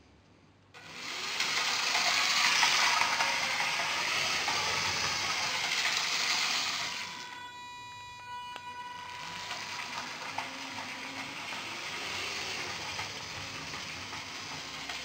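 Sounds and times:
toy train motor whirring: 0:00.8 - 0:15.0.

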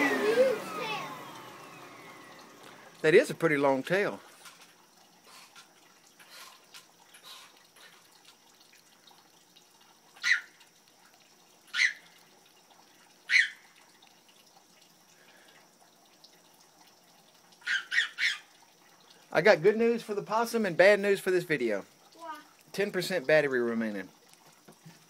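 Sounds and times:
faint high hiss: 0:00.0 - 0:08.8, 0:19.0 - 0:24.1
sharp animal calls: 0:10.2 - 0:10.6, 0:11.7 - 0:12.2, 0:13.2 - 0:13.7, 0:17.6 - 0:18.5.

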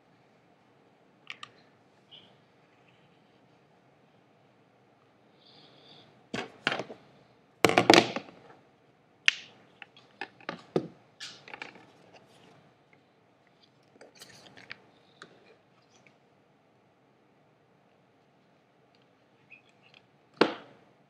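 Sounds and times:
knocks and clatter on wooden desk: 0:07.6 - 0:08.3.

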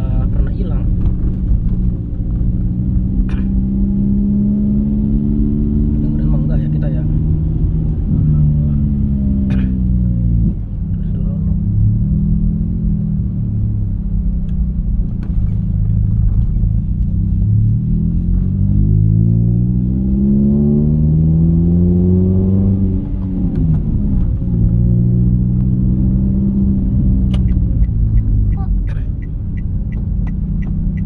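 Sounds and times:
car engine accelerating: 0:00.0 - 0:31.0.

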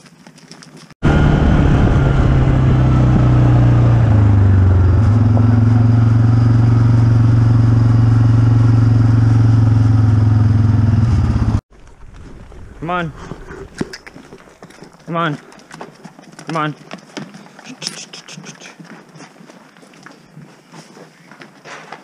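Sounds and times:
quad bike engine running: 0:01.0 - 0:11.6.

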